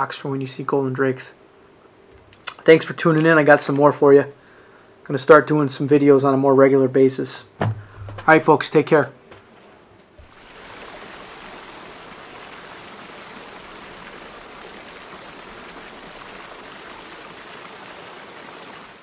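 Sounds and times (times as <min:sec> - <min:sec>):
stream water rushing: 0:10.2 - 0:19.0.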